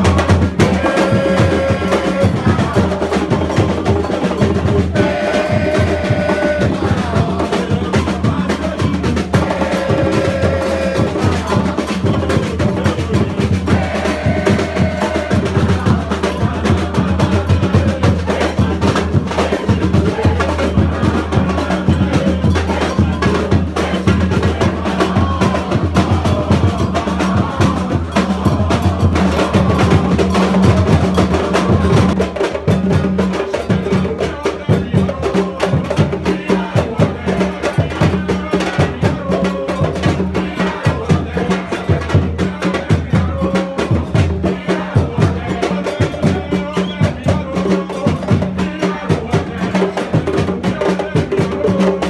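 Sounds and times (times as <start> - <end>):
hand drums: 0.0 - 52.0.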